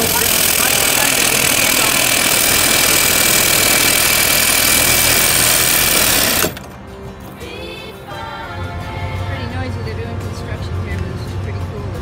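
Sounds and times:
reciprocating saw cutting metal: 0.0 - 6.7.

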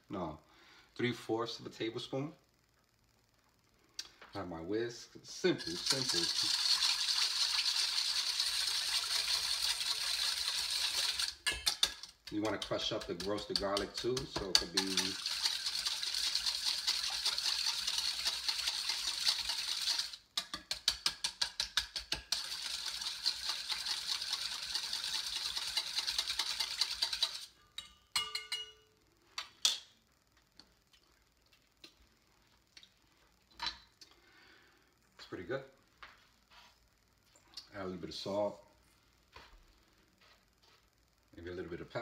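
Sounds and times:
whisk rattling in metal bowl: 5.6 - 27.5.

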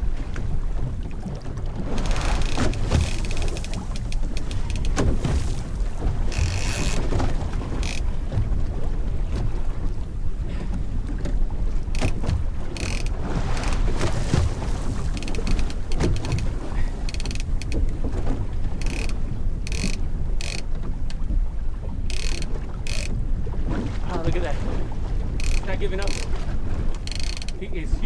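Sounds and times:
sea rumble: 0.0 - 28.0
wind: 0.0 - 28.0
fishing reel ratcheting: 2.0 - 5.0, 6.3 - 7.1, 7.8 - 8.0, 12.0 - 12.2, 12.8 - 13.8, 15.2 - 16.4, 17.1 - 17.8, 18.8 - 20.6, 22.1 - 23.1, 25.4 - 26.3, 27.0 - 27.6.

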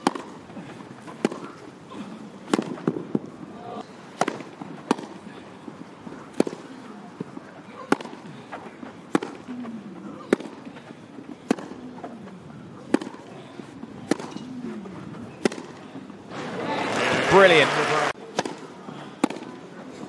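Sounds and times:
racket striking tennis ball: 0.0 - 0.4, 1.0 - 1.6, 2.4 - 3.3, 4.1 - 5.2, 6.3 - 6.8, 7.8 - 8.3, 9.1 - 9.5, 10.2 - 10.7, 11.4 - 11.9, 12.8 - 13.3, 14.0 - 15.8, 18.3 - 19.6.

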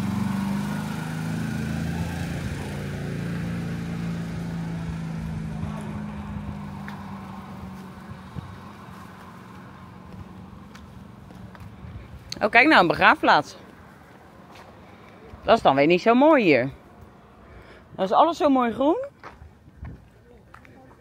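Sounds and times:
vehicle engine driving away: 0.0 - 18.0.

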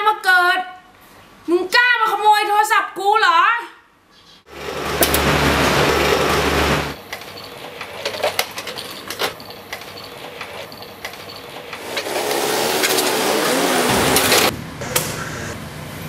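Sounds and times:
bicycle clicks and rattles: 7.1 - 12.2
vehicle engine hum in traffic: 10.7 - 16.0.

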